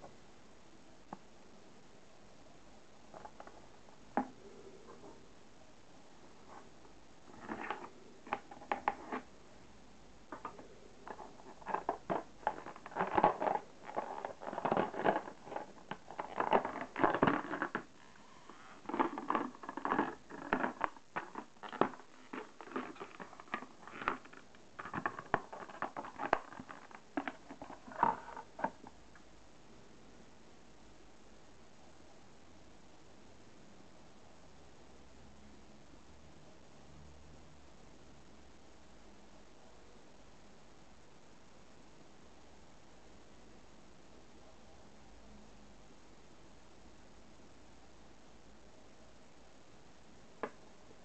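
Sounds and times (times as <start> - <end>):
plastic packaging crinkling: 10.3 - 28.9.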